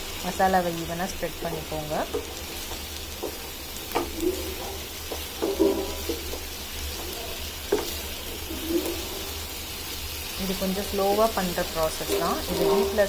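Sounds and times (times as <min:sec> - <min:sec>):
faint sizzle: 0:00.0 - 0:13.0
spatula scraping frying pan: 0:02.1 - 0:07.1, 0:07.7 - 0:09.6, 0:11.6 - 0:13.0
spatula knocking against pan: 0:03.2 - 0:06.5.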